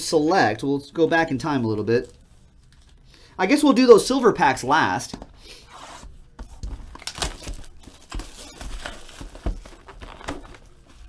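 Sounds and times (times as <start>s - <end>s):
packaging crinkling and tearing: 6.6s - 11.0s.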